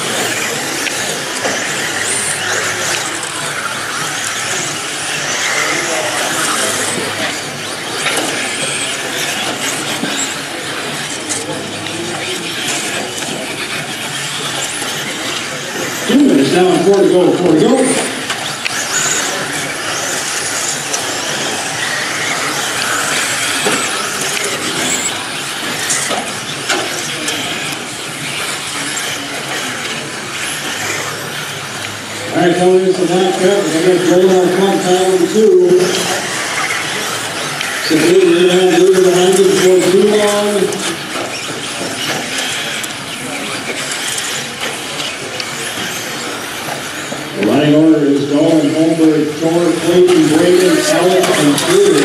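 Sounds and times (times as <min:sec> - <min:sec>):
clatter of gears and chassis: 0:00.0 - 0:16.1, 0:17.8 - 0:32.2, 0:40.6 - 0:47.6
rc car motor and tyre noise: 0:00.0 - 0:52.0.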